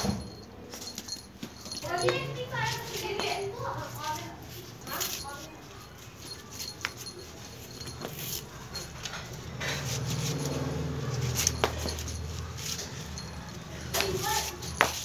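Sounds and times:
sandal tapping on concrete floor: 11.4s - 12.3s, 13.9s - 15.0s.

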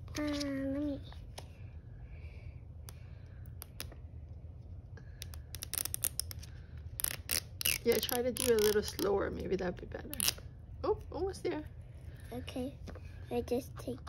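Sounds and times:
fingers scratching plastic egg: 7.0s - 9.2s.

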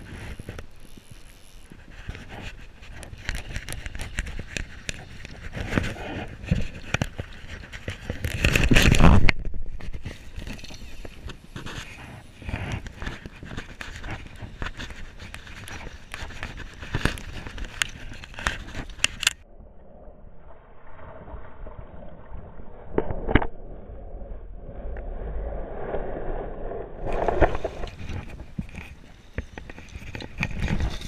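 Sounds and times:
clothing and gear rubbing on camera: 0.0s - 19.4s, 27.0s - 31.0s.

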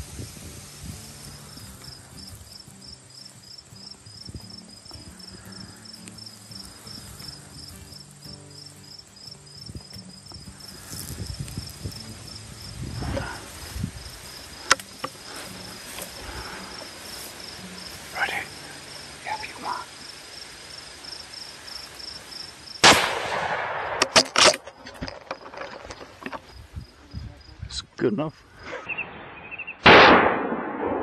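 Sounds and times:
insects chirping: 0.0s - 29.8s
low rumbling handling noise: 10.8s - 17.0s.

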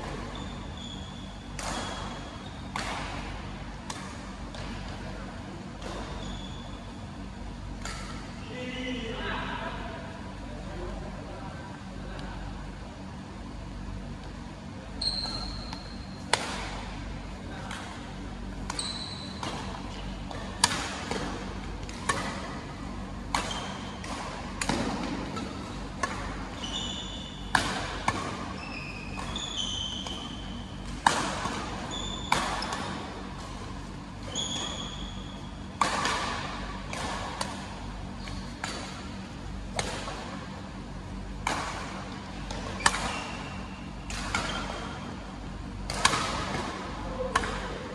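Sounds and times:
shoes squeaking on court floor: 0.0s - 2.9s, 5.8s - 6.9s, 14.9s - 16.3s, 18.7s - 20.6s, 23.4s - 24.0s, 26.4s - 27.6s, 28.3s - 35.7s, 38.0s - 39.2s, 42.6s - 45.2s
steady low hum: 0.0s - 47.9s
rackets striking shuttlecock: 18.6s - 22.6s, 23.2s - 26.8s, 27.5s - 40.4s, 41.4s - 45.1s, 45.8s - 47.8s.

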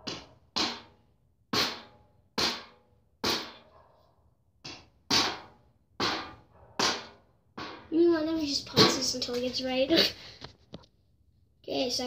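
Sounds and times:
hammer striking a nail: 0.0s - 3.7s, 4.6s - 7.9s.

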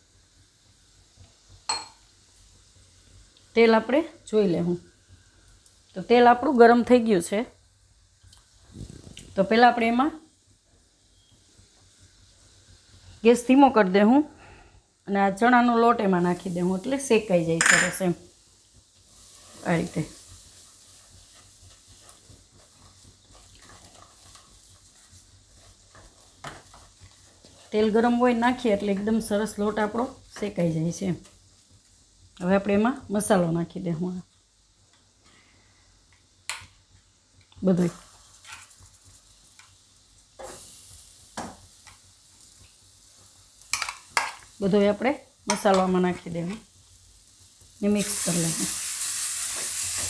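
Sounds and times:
low sizzle of oil: 0.0s - 50.0s
spatula scraping wok: 19.0s - 30.6s, 37.7s - 39.8s.

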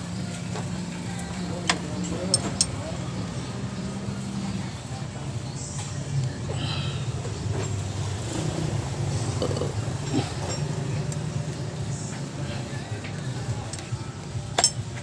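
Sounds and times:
low mechanical drone: 0.0s - 15.0s
clicks and metal taps: 14.6s - 14.8s.

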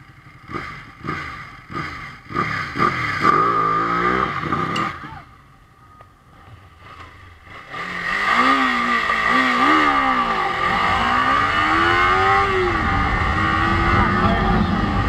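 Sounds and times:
motorcycle engine accelerating: 0.0s - 5.4s, 6.2s - 15.0s
wind noise on microphone: 10.6s - 15.0s.

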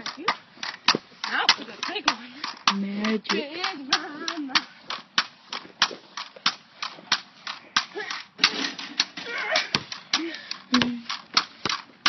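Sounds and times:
pogo stick bouncing on pavement: 0.0s - 12.0s.

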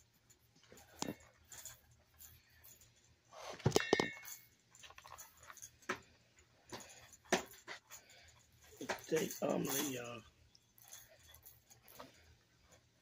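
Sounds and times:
ringing clink: 3.7s - 4.6s.

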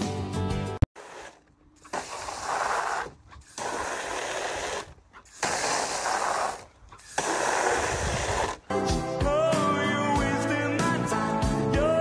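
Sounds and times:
water spattering into plastic pool: 1.0s - 8.6s
hose nozzle hissing: 1.0s - 8.7s.

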